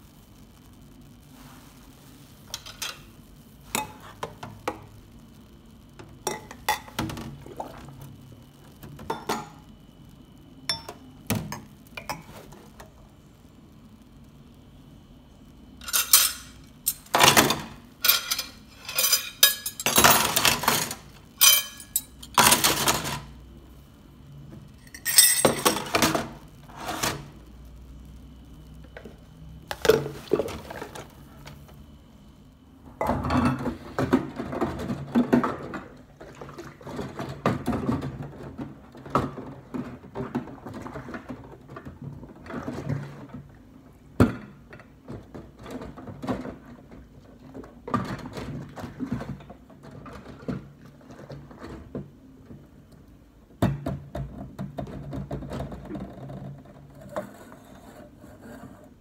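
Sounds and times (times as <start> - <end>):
dishes and cutlery clinking: 15.8 - 23.2, 24.9 - 26.2.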